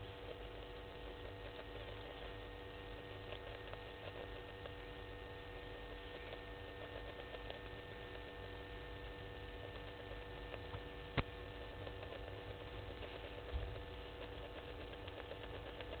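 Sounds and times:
electrical hum: 0.0s - 16.0s
faint ticks: 9.0s - 16.0s.

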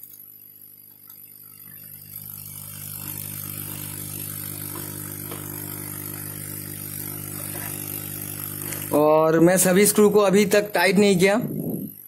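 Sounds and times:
electric blower motor humming: 0.0s - 12.0s.

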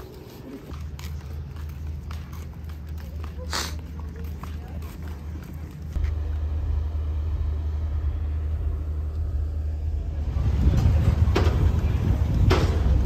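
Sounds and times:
ferry engine rumble: 0.0s - 13.0s
wind rushing over microphone: 9.8s - 13.0s.

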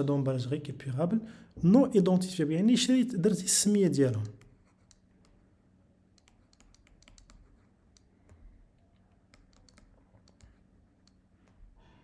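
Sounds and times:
faint low hum: 0.0s - 12.0s
stylus tapping on pen tablet: 6.1s - 11.7s.

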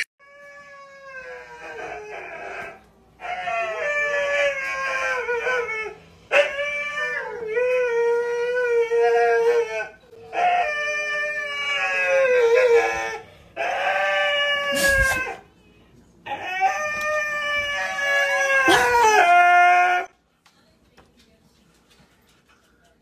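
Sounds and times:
dog howling: 0.3s - 15.4s, 16.3s - 20.1s.

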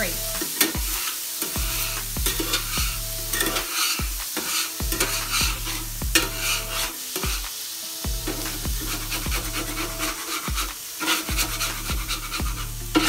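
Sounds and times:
background music with steady beat: 0.0s - 13.0s
water sizzling on hot griddle: 0.0s - 13.0s.

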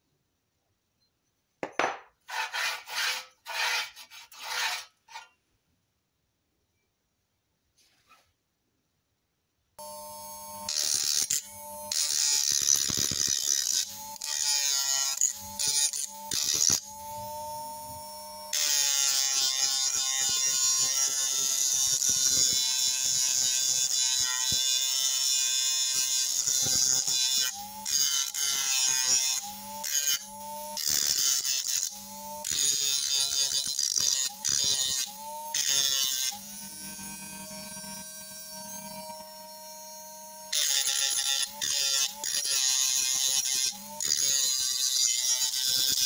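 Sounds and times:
abrasive disc grinding steel: 2.2s - 5.3s
electric motor whining: 16.2s - 18.6s, 36.3s - 40.6s.

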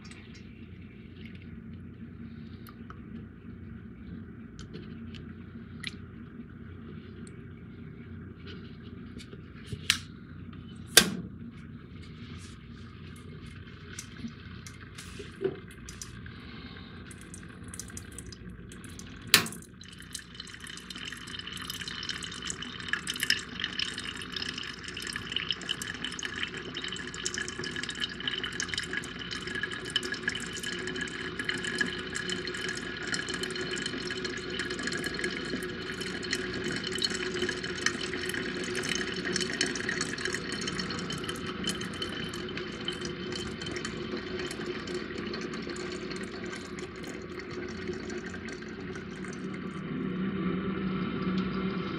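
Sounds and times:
coffee trickling into decanter: 8.4s - 50.3s.

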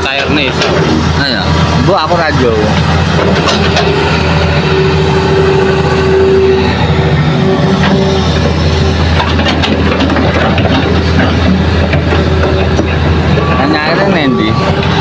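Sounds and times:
excavator diesel engine running: 0.0s - 15.0s
steady whine: 0.0s - 15.0s
soil and rocks clattering into truck: 9.2s - 13.5s.

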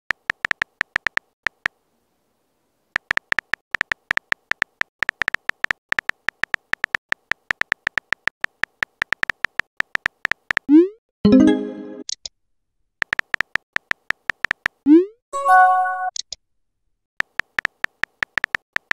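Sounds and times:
phone keyboard typing ticks: 0.1s - 1.8s, 3.0s - 10.7s, 13.0s - 14.8s, 17.2s - 18.9s.

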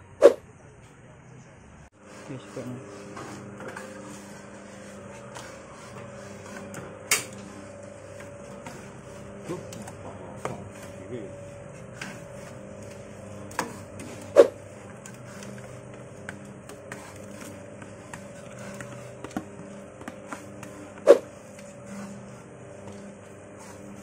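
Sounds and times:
mixer motor hum: 1.9s - 24.0s.

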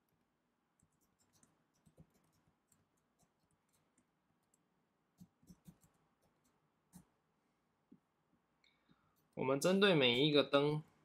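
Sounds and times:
keyboard typing: 0.8s - 7.1s.

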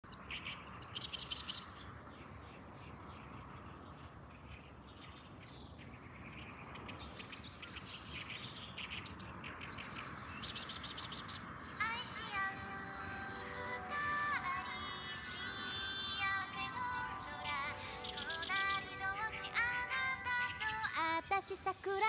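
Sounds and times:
small birds chirping: 0.0s - 21.6s
outdoor background hiss: 0.1s - 22.0s
music with synthesized singing voice: 11.4s - 22.0s.

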